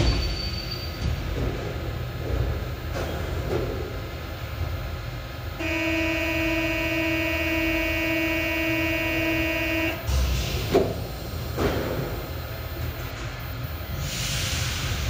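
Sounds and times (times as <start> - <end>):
train doors shutting: 0.0 - 6.7, 9.0 - 15.0
train door warning buzzer: 5.6 - 10.2.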